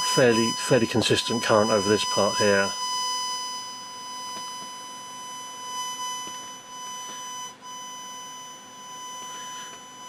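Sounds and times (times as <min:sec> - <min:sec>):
steady amplifier tone: 0:00.0 - 0:10.0.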